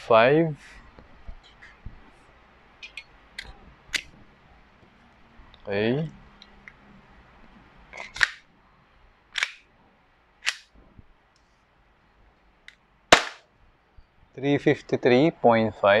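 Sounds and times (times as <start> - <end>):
airsoft pistol shots: 13.1 - 13.4.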